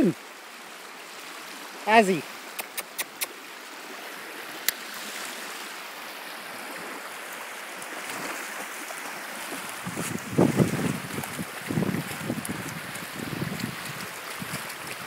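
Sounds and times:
small waves lapping on shore: 0:00.0 - 0:15.0.

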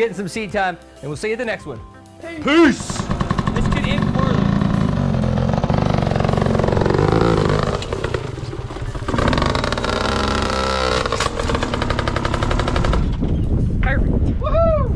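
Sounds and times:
dirt bike engine revving: 0:02.5 - 0:13.4.

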